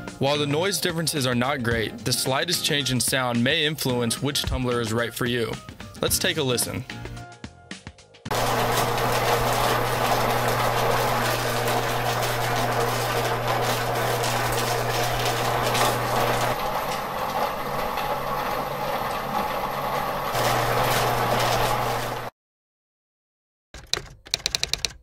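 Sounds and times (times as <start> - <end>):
rock tumbler barrels clattering: 8.3 - 18.2
electric motor hum: 8.3 - 22.3.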